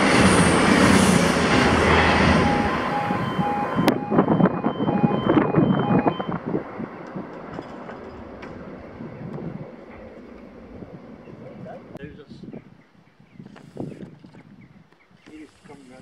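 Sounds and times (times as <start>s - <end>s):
diesel train running: 0.0s - 12.1s
repeating electronic beep: 2.3s - 6.4s.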